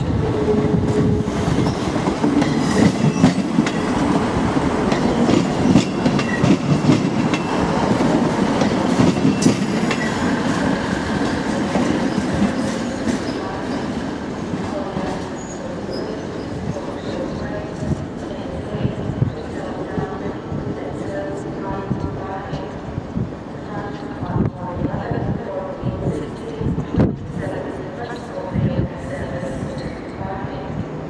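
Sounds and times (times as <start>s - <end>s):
train wheels clattering over rails: 0.6s - 18.0s.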